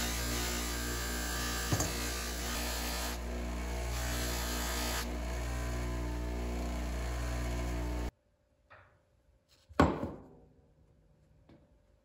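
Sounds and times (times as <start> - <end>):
power tool motor running: 0.0 - 8.1.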